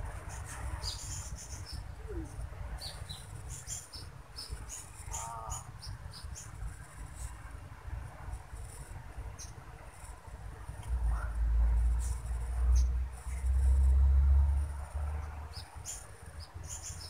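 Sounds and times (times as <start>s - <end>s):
insect buzz drone: 11.2s - 17.0s.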